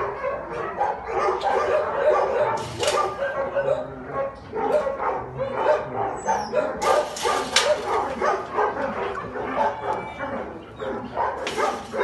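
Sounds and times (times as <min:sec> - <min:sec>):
dog yipping and barking: 0:00.0 - 0:12.0.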